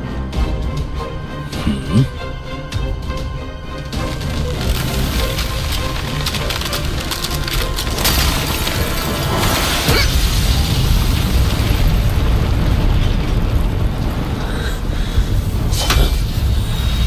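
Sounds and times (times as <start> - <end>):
dramatic orchestral music: 0.0 - 17.0
ice crackling and shattering: 3.6 - 17.0
deep rumbling boom: 8.8 - 17.0.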